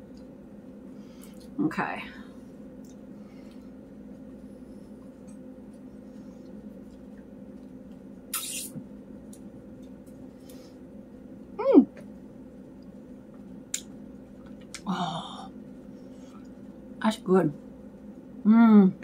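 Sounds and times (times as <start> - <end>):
faint steady hum: 0.0 - 19.0
slurp through a straw: 8.3 - 8.7.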